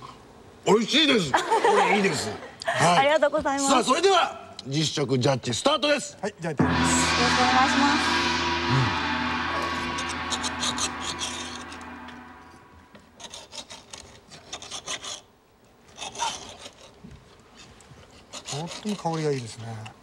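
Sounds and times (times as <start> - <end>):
music sting: 6.6 - 13.0.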